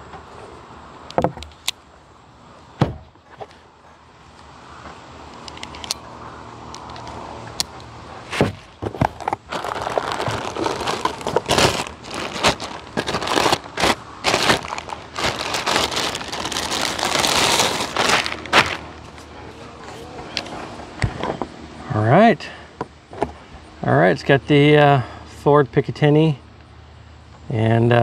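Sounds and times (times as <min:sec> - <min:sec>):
plastic bag crinkling: 0:09.1 - 0:19.3.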